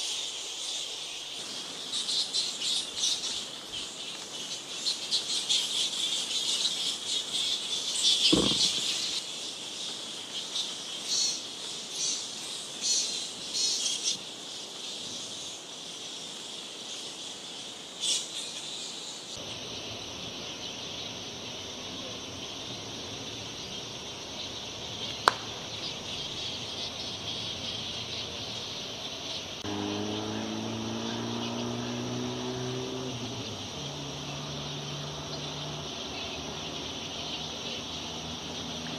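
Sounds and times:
fruit bats squeaking chatter: 4.8s - 9.3s.

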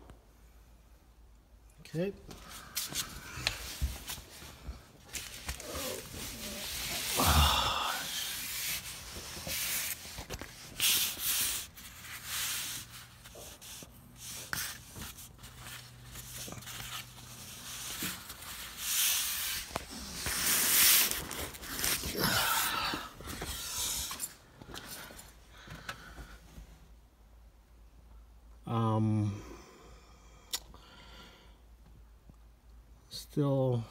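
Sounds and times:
cloth rag rustling: 2.4s - 24.0s.

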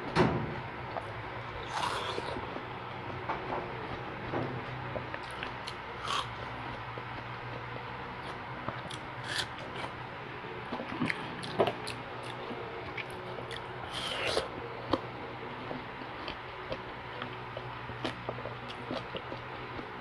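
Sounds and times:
steady low hum: 0.0s - 20.0s
wet biting and chewing: 1.5s - 2.5s, 5.0s - 6.4s, 8.2s - 10.0s, 10.9s - 15.0s, 15.7s - 19.9s.

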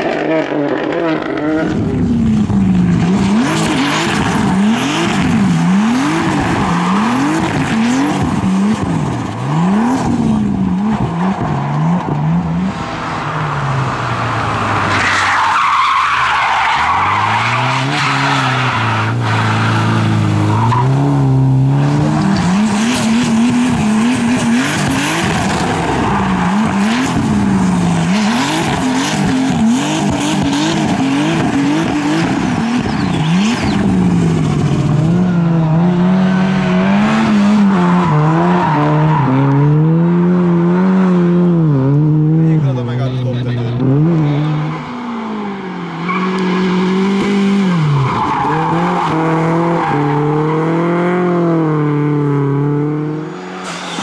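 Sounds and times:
tyres skidding on gravel: 0.0s - 35.4s
rally car engines revving: 0.0s - 54.0s.

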